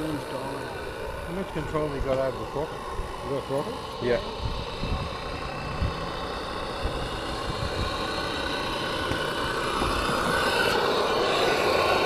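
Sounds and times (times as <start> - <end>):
model boat steam engine running: 0.0 - 12.0.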